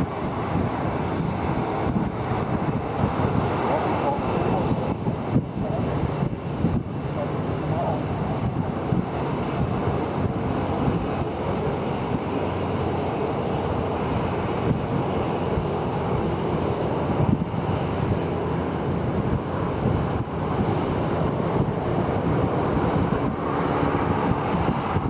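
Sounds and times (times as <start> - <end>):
jet airliner flying overhead: 0.0 - 25.0
wind buffeting microphone: 0.0 - 25.0.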